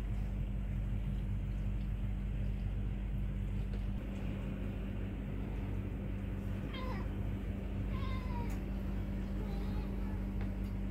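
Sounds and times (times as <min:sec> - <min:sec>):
steady low hum: 0:00.0 - 0:10.9
cat meowing: 0:06.7 - 0:07.2.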